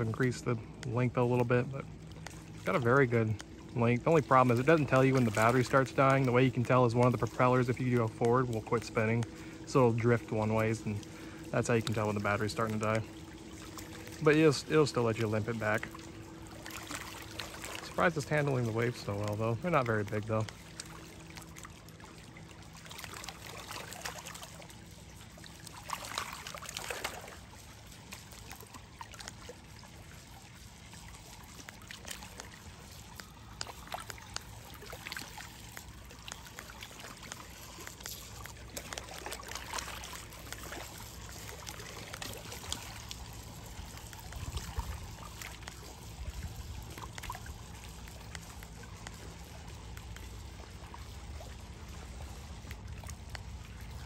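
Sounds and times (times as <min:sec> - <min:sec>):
lake waves lapping: 0:00.0 - 0:54.0
brief splashes: 0:02.1 - 0:49.5.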